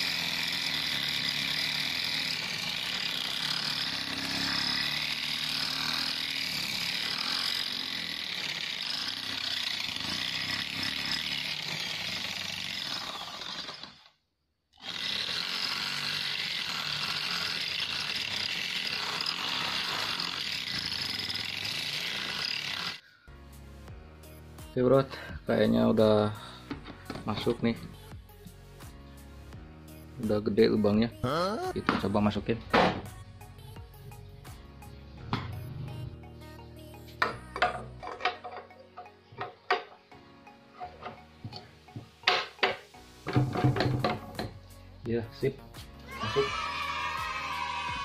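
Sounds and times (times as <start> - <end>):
electric drill cutting metal: 0.0 - 14.2, 14.8 - 23.0, 37.1 - 44.6, 46.0 - 48.0.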